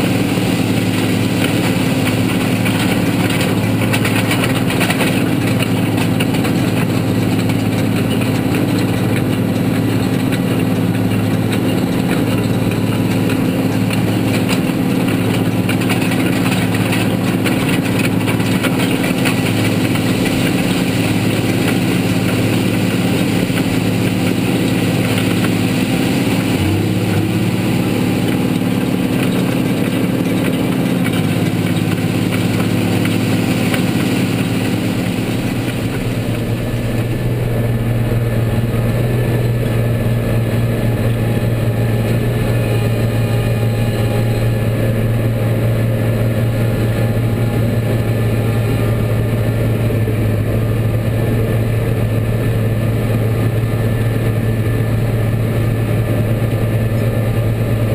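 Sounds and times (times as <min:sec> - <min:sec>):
tractor engine running: 0:00.0 - 0:57.9.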